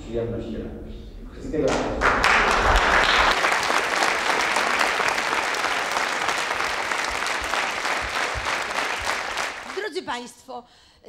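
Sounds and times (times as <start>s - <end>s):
audience applauding: 1.6s - 10.0s.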